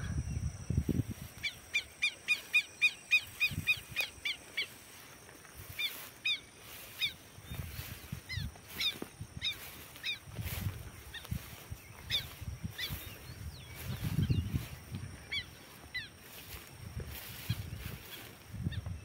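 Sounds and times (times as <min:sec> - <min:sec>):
bird calling: 0:01.4 - 0:05.0, 0:05.7 - 0:10.3, 0:10.9 - 0:16.5.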